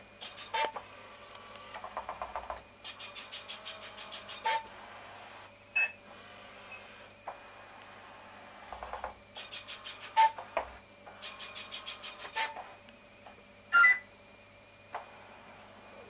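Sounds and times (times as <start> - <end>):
robot mechanism rapid ticking: 2.2 - 4.6, 9.4 - 10.3, 11.2 - 12.6.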